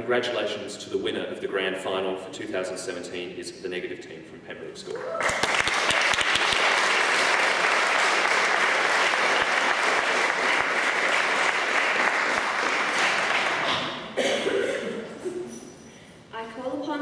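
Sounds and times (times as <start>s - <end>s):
audience applauding: 5.2s - 14.0s.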